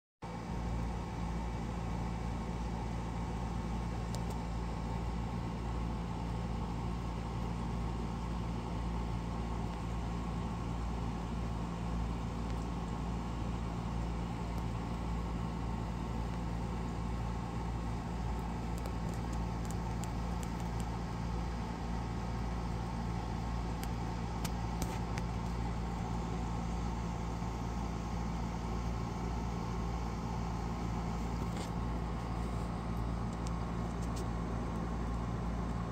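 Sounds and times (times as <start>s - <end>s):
low machine hum: 0.2s - 35.9s.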